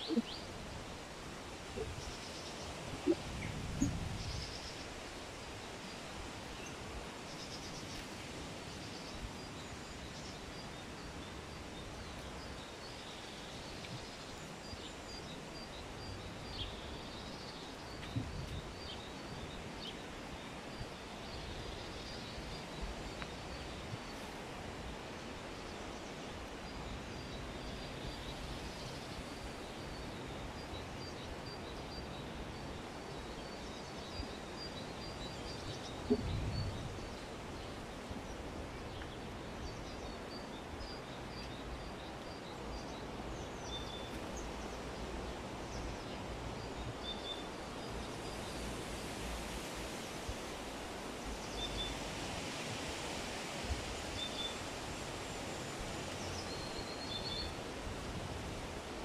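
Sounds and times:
wind rumble on microphone: 0.0 - 5.0, 17.8 - 19.8, 35.5 - 40.2.

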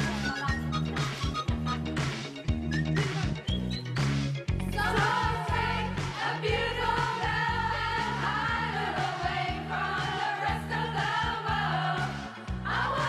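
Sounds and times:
song with beat and singing: 4.6 - 13.0.

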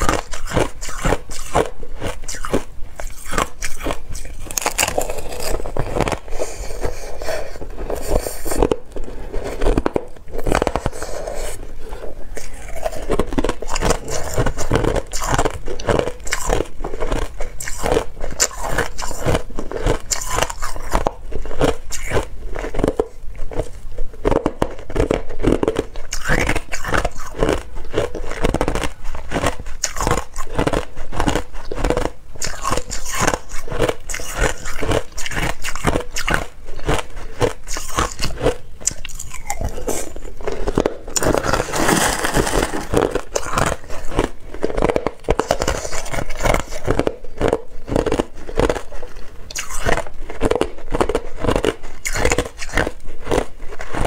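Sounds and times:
metal spoon scraping ice: 0.0 - 21.0, 32.4 - 48.8
ice being chewed: 0.0 - 54.0.

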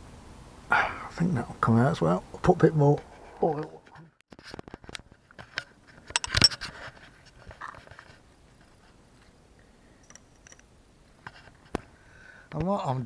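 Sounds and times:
ratchet and sockets clinking: 6.1 - 6.7.

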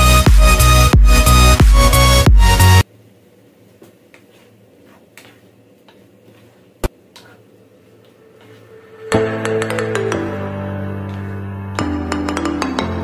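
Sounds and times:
background music: 0.0 - 2.8, 8.2 - 13.0.

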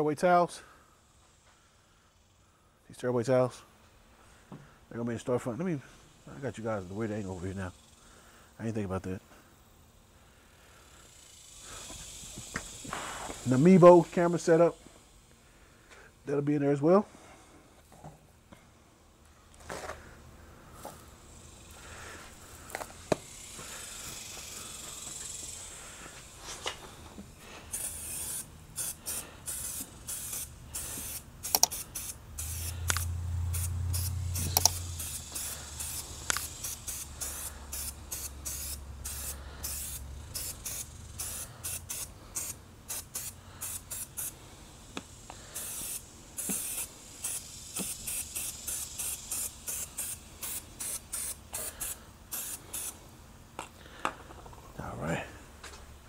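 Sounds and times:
spray bottle squirting: 27.7 - 53.0
low hum: 32.2 - 41.2.

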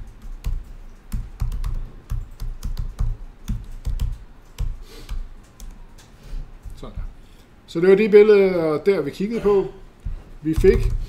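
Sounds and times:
typing on computer keyboard: 0.0 - 7.1, 10.0 - 11.0.

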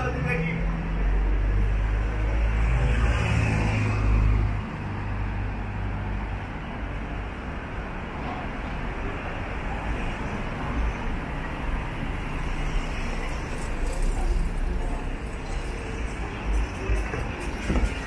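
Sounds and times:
city traffic rumble: 0.0 - 18.0.

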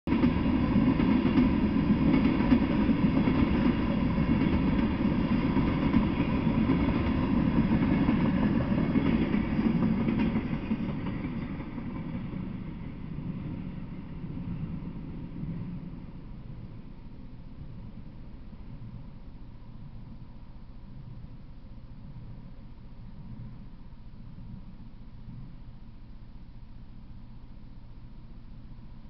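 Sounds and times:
freight train wheels on rails: 0.1 - 19.9.

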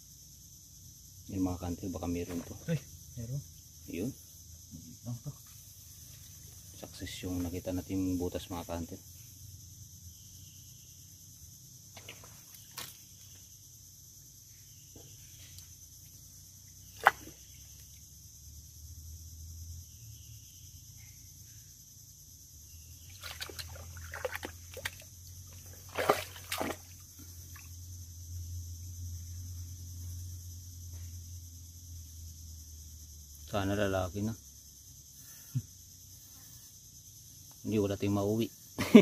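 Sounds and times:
muddy water sloshing and squelching: 23.1 - 27.7.

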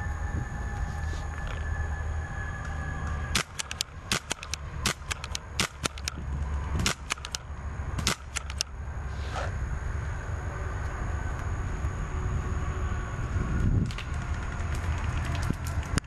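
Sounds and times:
paintball marker firing: 3.3 - 8.7.

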